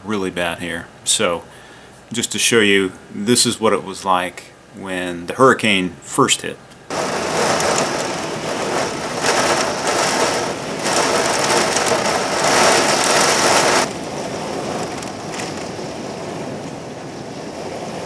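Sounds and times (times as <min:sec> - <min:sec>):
heavy rain and wind against window: 0:06.9 - 0:18.0.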